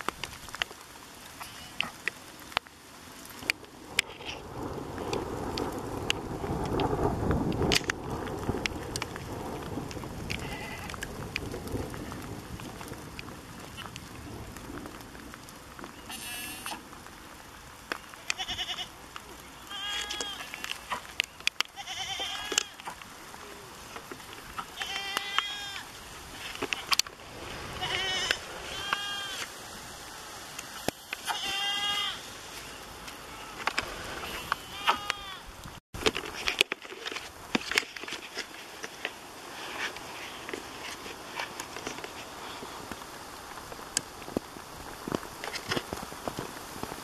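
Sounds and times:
wind noise: 3.3 - 19.1, 19.7 - 47.0
goat bleating: 18.3 - 18.9, 19.6 - 20.8, 21.7 - 23.0, 24.6 - 25.9, 27.8 - 29.5, 31.2 - 33.7, 34.3 - 35.4.

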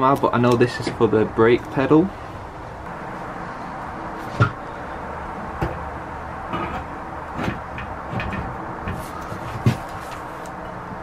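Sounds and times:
metal knocks and clunks: 4.3 - 4.6, 5.5 - 9.9.

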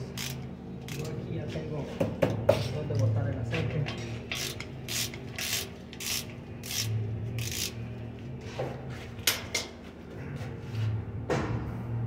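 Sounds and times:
ratchet wrench clicking: 0.0 - 1.1, 4.3 - 7.8.

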